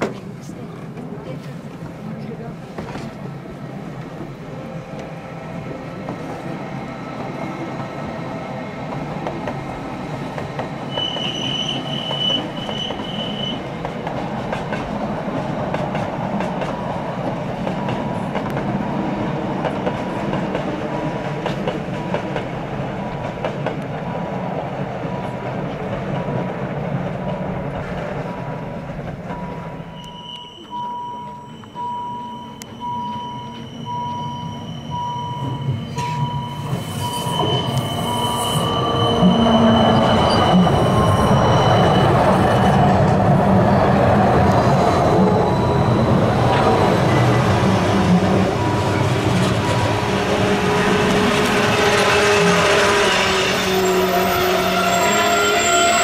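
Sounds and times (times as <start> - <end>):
train wheels rumbling on rails: 0.0 - 31.9, 32.6 - 56.0
high wheel squeal: 10.9 - 13.7, 29.4 - 44.0, 50.2 - 56.0.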